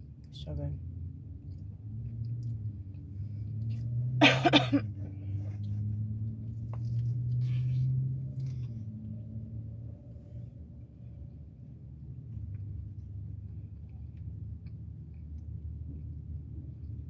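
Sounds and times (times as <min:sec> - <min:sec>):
low car cabin hum: 0:00.0 - 0:17.0
person chewing pizza: 0:12.1 - 0:17.0.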